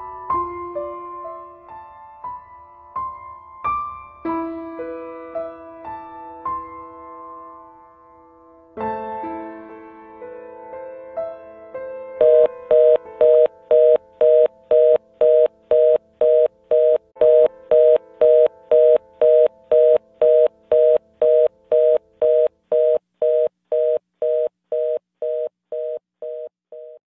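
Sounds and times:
telephone fast-busy tone: 12.2 - 27.0.

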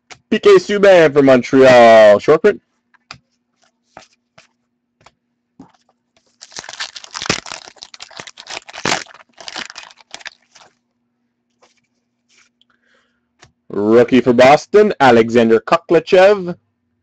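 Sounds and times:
wrapper tearing and crinkling: 6.3 - 10.8.

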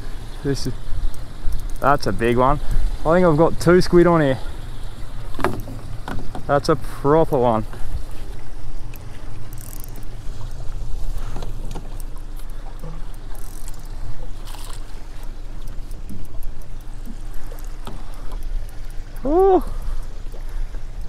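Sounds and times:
water around a boat: 0.0 - 21.0
wind: 0.0 - 21.0
small clicks: 8.9 - 10.6, 11.3 - 21.0.

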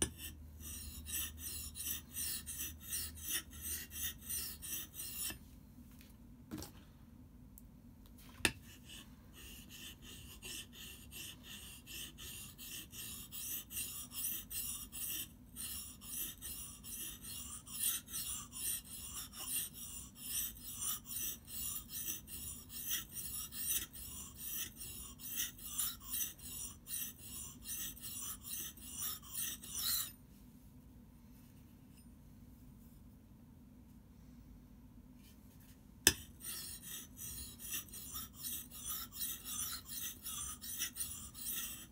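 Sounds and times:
axe scraping on whetstone: 9.8 - 30.1, 36.1 - 41.9.

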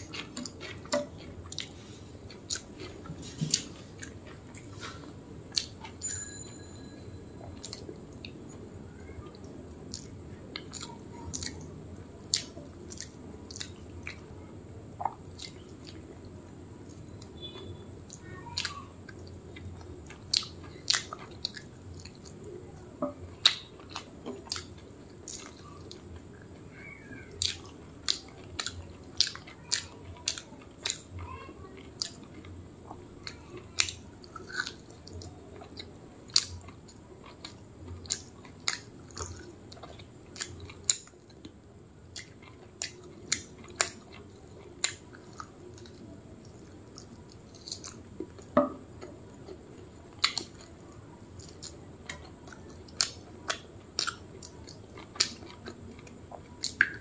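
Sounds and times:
chewing and lip smacking: 0.0 - 6.0, 9.2 - 14.3, 15.0 - 22.6, 23.3 - 57.0.

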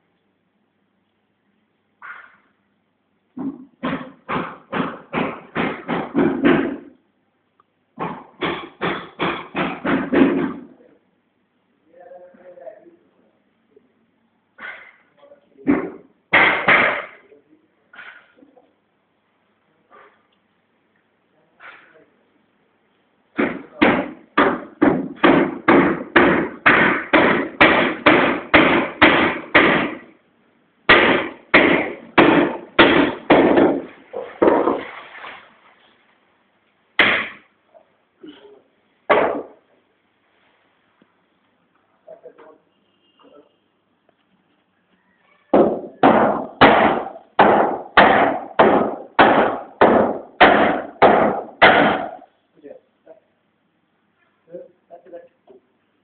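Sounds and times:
hammer striking wood: 3.4 - 6.9, 8.0 - 10.7, 15.6 - 17.2, 23.3 - 30.1, 30.9 - 34.8, 37.0 - 37.5, 39.1 - 39.6, 45.5 - 52.3.

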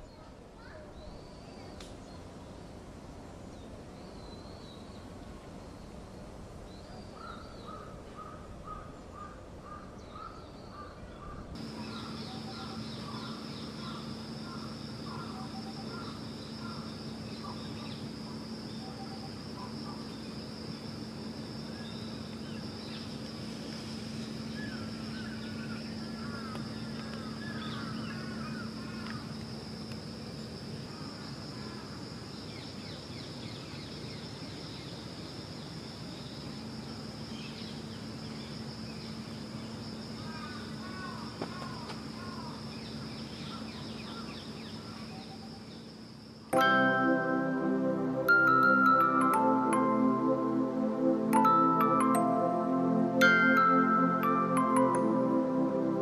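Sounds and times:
small birds chirping: 6.6 - 31.1
steady hum: 11.5 - 31.2, 46.0 - 56.0.

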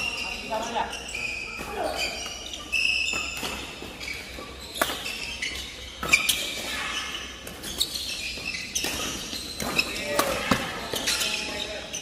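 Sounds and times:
sneakers squeaking on wooden court: 0.0 - 12.0
rackets striking shuttlecock: 4.7 - 5.2, 7.4 - 11.3.

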